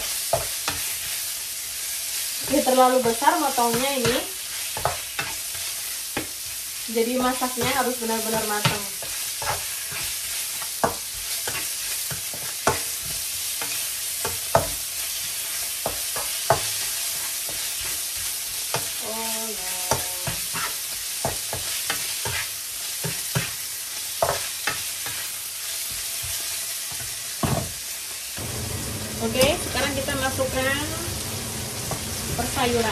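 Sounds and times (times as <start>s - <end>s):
chicken sizzling in a frying pan: 0.0s - 32.9s
spatula knocking and scraping pan: 7.4s - 19.0s, 24.2s - 25.2s.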